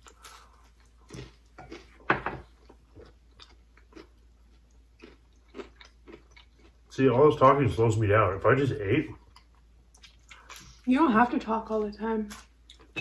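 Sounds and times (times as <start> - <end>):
people biting and chewing pizza: 0.0 - 6.9.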